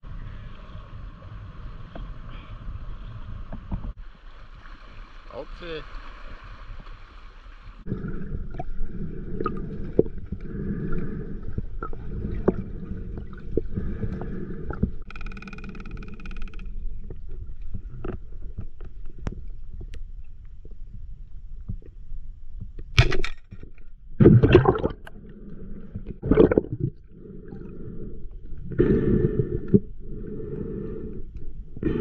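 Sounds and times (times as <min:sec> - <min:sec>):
muffled underwater rush: 0:00.0 - 0:15.0, 0:24.2 - 0:31.1.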